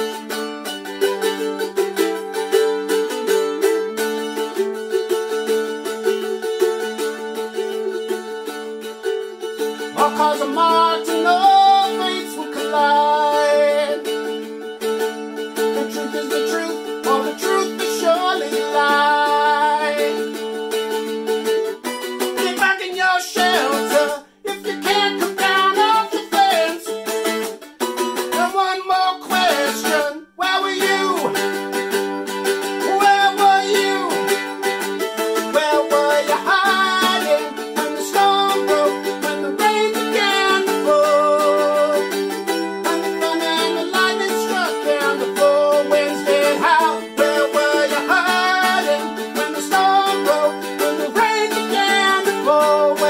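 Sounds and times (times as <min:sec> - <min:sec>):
mandolin strummed chords: 0:00.0 - 0:53.0
man singing: 0:09.2 - 0:14.4, 0:15.6 - 0:20.6, 0:22.2 - 0:27.5, 0:28.2 - 0:31.7, 0:32.6 - 0:53.0.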